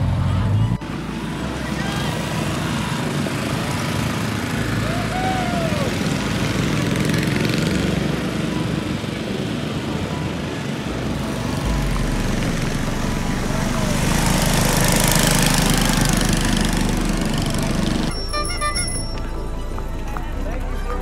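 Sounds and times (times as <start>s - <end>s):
small engines puttering past: 0.0s - 21.0s
rising and falling tone: 10.9s - 20.2s.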